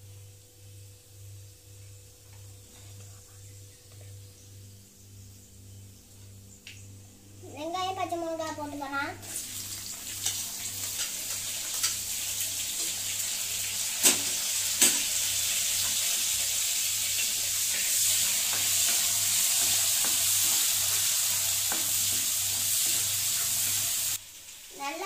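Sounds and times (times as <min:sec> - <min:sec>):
onion and chilli sizzling in oil: 0:08.8 - 0:25.0.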